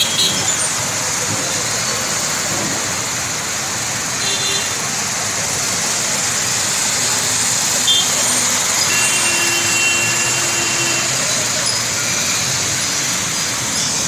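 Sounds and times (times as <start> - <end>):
heavy rain hissing: 0.0 - 14.0
vehicles splashing through water: 0.0 - 14.0.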